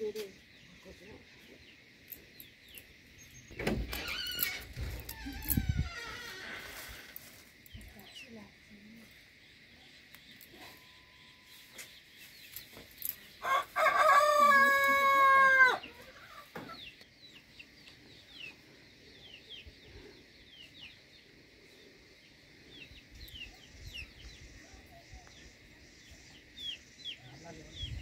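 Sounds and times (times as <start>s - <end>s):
rooster crowing: 13.4s - 16.1s.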